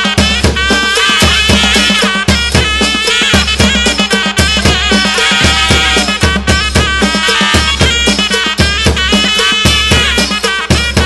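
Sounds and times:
quick steady drum beat: 0.0s - 11.0s.

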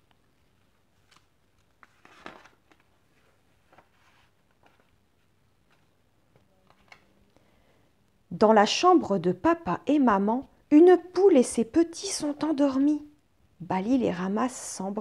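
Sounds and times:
paper rustles and taps: 0.0s - 7.0s
page turning swish: 0.5s - 5.9s.

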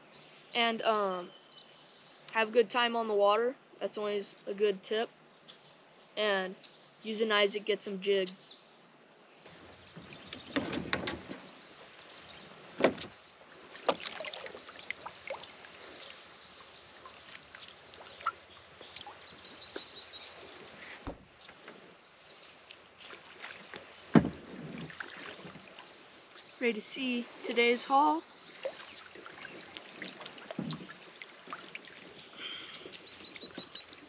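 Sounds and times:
paddle dipping in water: 9.5s - 26.5s, 28.4s - 34.0s
paddle knocking plastic hulls: 10.0s - 11.6s, 23.7s - 25.6s, 29.9s - 31.7s.

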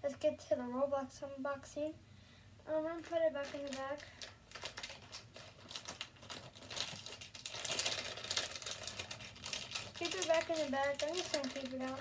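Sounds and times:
plastic bag crinkling: 2.8s - 12.0s.

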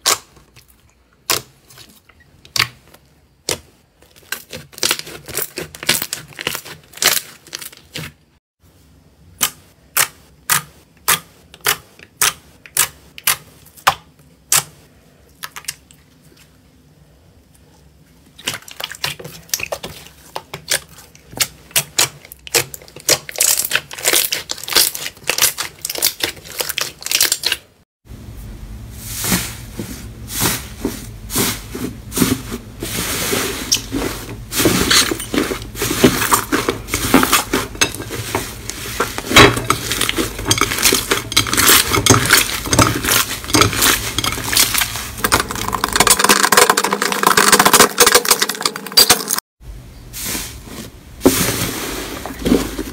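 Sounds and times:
slime popping and crackling: 21.4s - 27.6s
low hum: 28.1s - 31.3s.

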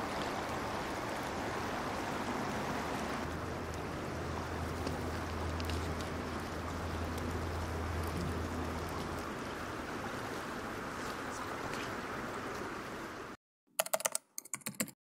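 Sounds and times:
rushing river water: 0.0s - 13.4s
low hum: 2.8s - 11.5s.

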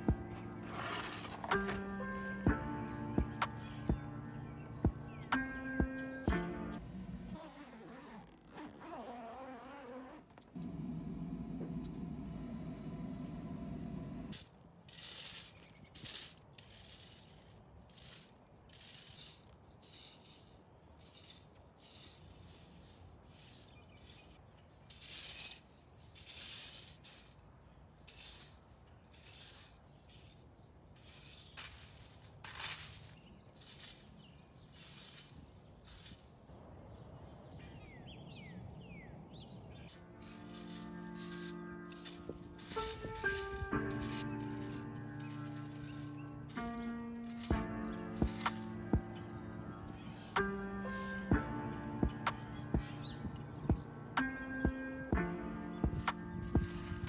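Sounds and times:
rake scraping across soil: 0.0s - 2.4s, 14.3s - 27.4s, 28.1s - 36.3s, 39.8s - 49.6s, 56.0s - 57.0s.

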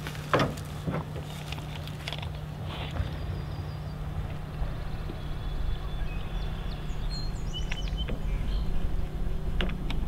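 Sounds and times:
steady low rumble: 0.0s - 10.0s
small birds chirping: 2.9s - 9.6s.

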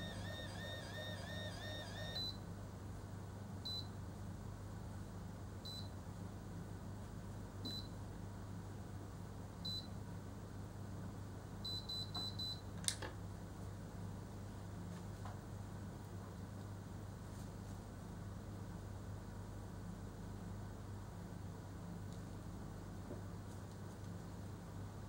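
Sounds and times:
hair curler timer beeping: 0.0s - 2.4s.

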